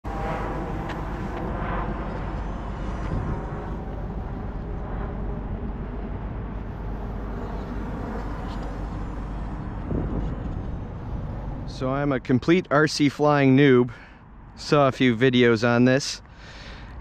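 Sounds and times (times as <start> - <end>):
low rumble: 0.0 - 12.4.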